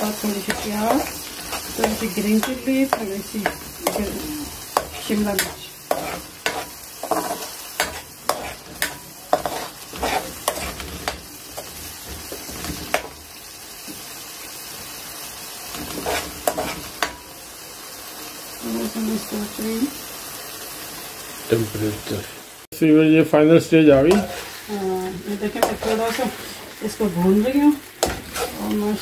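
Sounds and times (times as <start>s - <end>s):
frying sizzle: 0.0s - 29.0s
metal ladle scraping pan: 0.3s - 13.1s, 15.8s - 17.1s, 28.0s - 28.9s.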